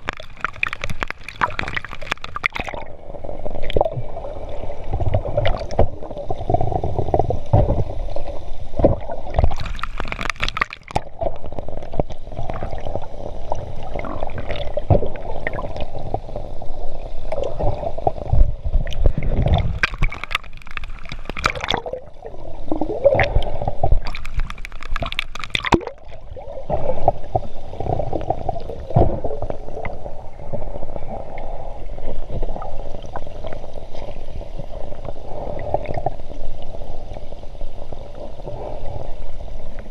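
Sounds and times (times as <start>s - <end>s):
bursts of bubbles: 0.0s - 3.0s, 18.9s - 27.0s
underwater gurgling and bubbling: 0.0s - 39.9s
underwater knocks: 4.9s - 8.0s, 8.8s - 9.6s, 14.4s - 16.2s, 26.8s - 30.0s.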